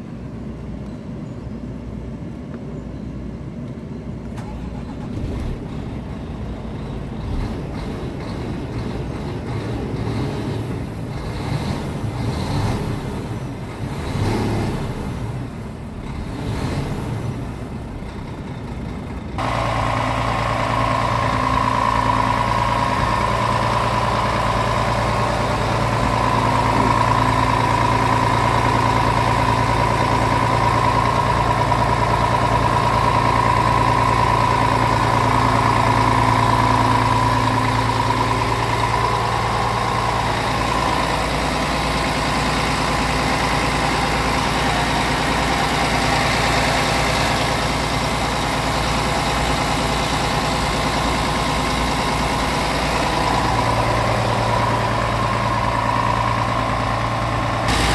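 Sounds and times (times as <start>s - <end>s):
diesel engine idling: 3.0s - 57.9s.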